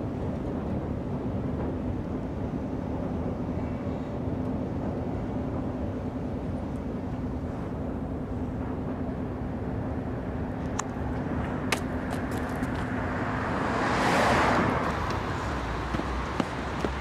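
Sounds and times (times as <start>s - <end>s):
city street traffic: 0.0s - 17.0s
car passing by: 11.3s - 17.0s.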